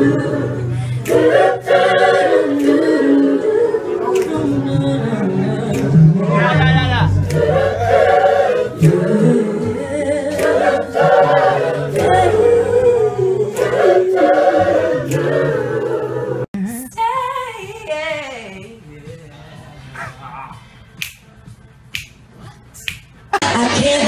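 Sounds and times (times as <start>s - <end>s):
group of voices singing: 0.0s - 17.9s.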